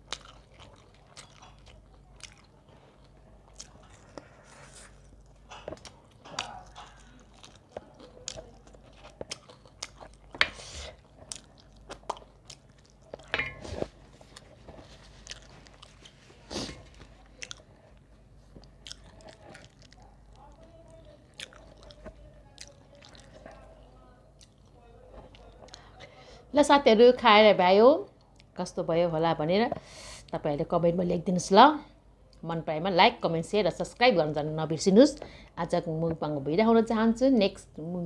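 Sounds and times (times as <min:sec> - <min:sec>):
chewing and crunching: 0:00.0 - 0:26.0, 0:28.1 - 0:28.6.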